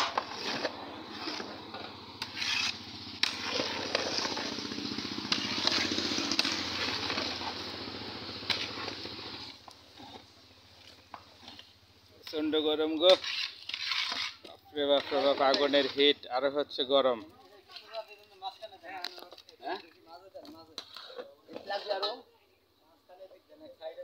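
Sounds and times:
paddle stirring metal pot: 8.4s - 11.8s.

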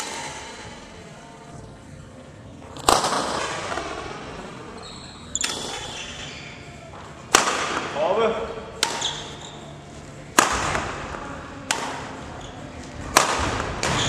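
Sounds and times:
racket hitting shuttlecock: 0.0s - 0.6s, 7.3s - 8.0s, 8.7s - 9.6s, 10.3s - 12.2s, 13.0s - 14.0s.

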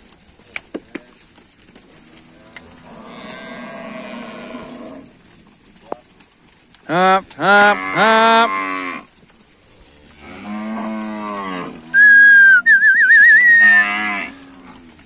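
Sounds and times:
cattle mooing: 2.0s - 5.2s, 6.9s - 9.1s, 9.7s - 15.0s
person whistling loudly: 12.0s - 13.9s.

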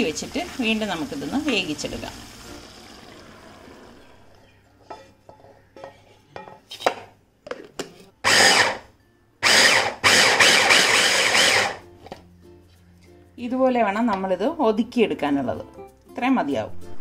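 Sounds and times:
electric chopper crushing spices: 8.2s - 11.8s.

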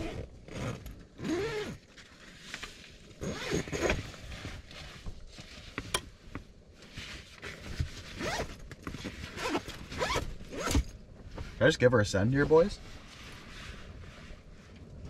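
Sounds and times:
zipper rasping on fabric: 0.0s - 1.8s, 3.2s - 4.6s, 8.1s - 8.6s, 9.2s - 10.8s.

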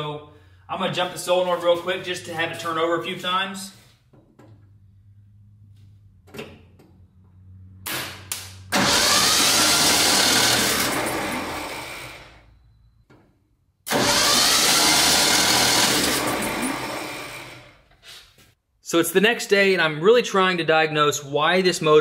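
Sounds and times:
starter motor cranking: 8.7s - 12.4s, 13.9s - 17.8s.

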